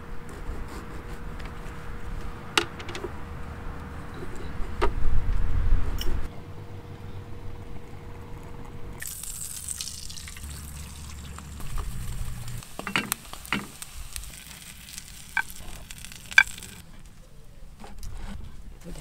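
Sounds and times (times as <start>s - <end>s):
food sizzling in a pan: 9.0s - 16.8s.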